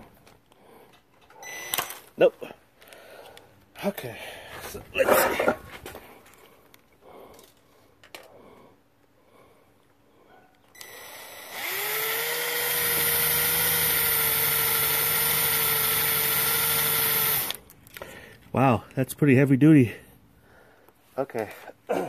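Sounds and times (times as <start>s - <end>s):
impact driver whining: 10.8s - 17.6s.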